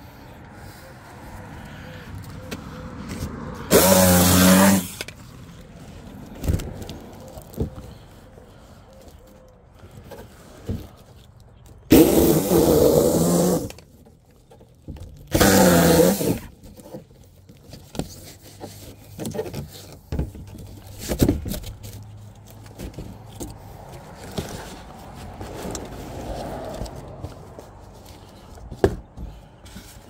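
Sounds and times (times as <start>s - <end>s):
electric saw cutting: 3.7s - 5.0s.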